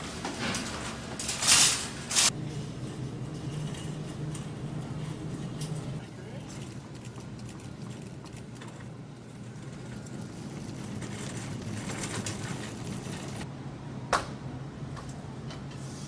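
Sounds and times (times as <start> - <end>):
steady low hum: 2.3 - 15.4
shopping cart rattling: 3.4 - 13.4.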